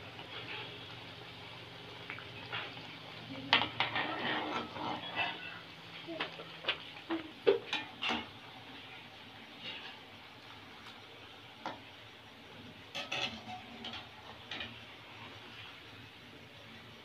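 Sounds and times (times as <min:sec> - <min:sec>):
food sizzling in oil: 0:00.0 - 0:17.0
metal spoon scraping a pan: 0:03.5 - 0:05.6, 0:09.5 - 0:10.0, 0:12.9 - 0:14.8.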